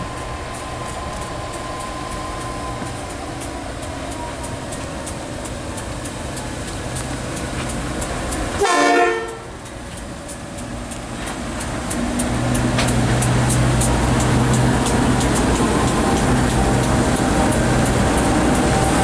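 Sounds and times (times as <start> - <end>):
diesel locomotives running: 0.0 - 19.0
train horn blast: 8.6 - 9.6.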